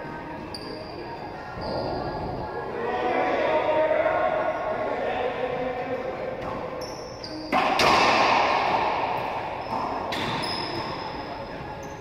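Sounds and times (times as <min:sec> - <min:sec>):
sneakers squeaking on hardwood: 0:00.5 - 0:02.1, 0:06.4 - 0:07.9, 0:09.1 - 0:12.0
racquetball struck hard echoing: 0:07.4 - 0:11.3.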